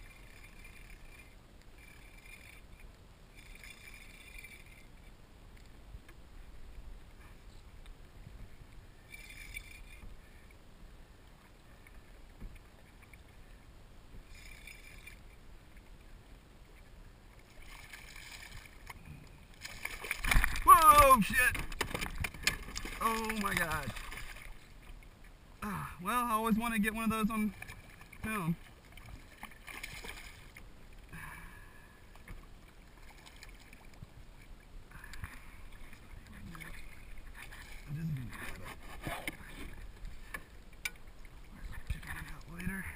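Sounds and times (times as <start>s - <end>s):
water lapping against a kayak: 0.0s - 42.9s
fish splashing: 19.6s - 25.0s, 27.3s - 30.6s.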